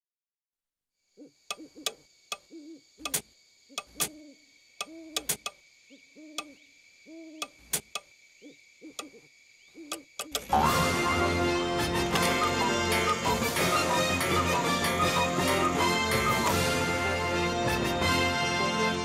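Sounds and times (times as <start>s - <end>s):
owl hooting: 1.2s - 11.2s, 12.0s - 16.8s
sharp clicks: 1.5s - 4.2s, 4.8s - 5.6s, 6.4s - 6.6s, 7.4s - 8.1s, 9.0s - 9.2s, 9.9s - 10.5s.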